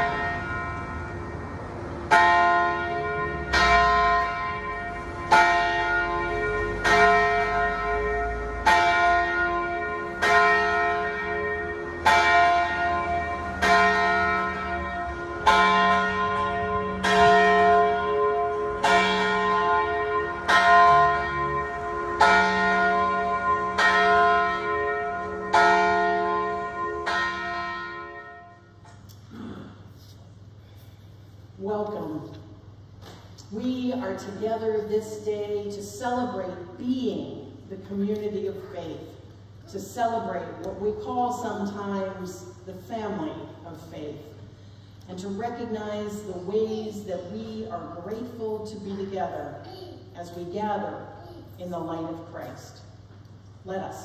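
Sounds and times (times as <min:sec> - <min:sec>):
church bell tolling: 0:00.0 - 0:28.8.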